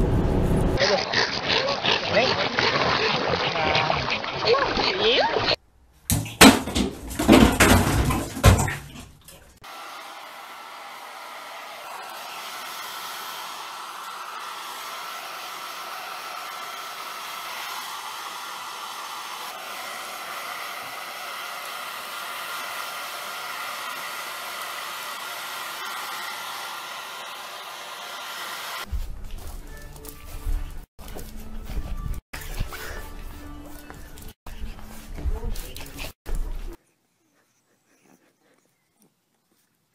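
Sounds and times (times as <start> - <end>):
hair dryer blowing: 9.6 - 29.0.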